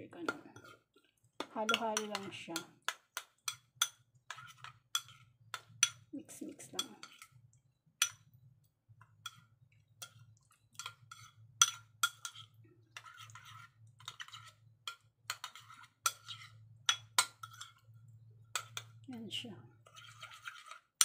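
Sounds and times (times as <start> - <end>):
spoon clinking in ceramic bowl: 10.8 - 12.5.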